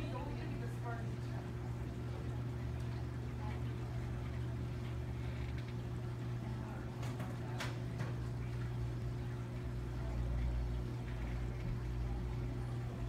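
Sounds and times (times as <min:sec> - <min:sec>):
aquarium pumps humming: 0:00.0 - 0:13.0.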